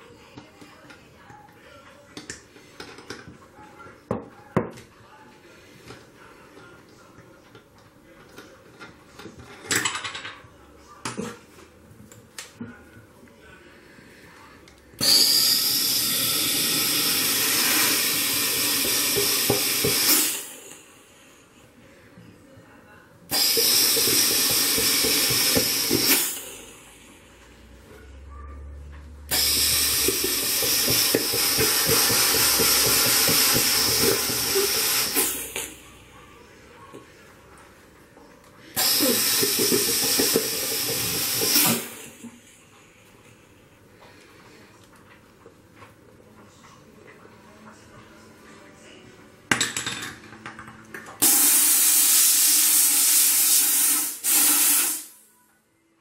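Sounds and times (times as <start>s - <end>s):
steam cleaner hissing: 15.0s - 20.8s, 23.3s - 27.1s, 29.3s - 35.8s, 38.8s - 42.3s, 51.2s - 55.2s.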